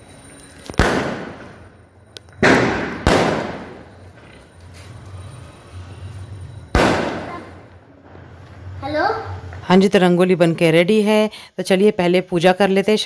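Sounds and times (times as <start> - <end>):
fireworks bangs echoing: 0.7 - 5.3, 6.0 - 8.4.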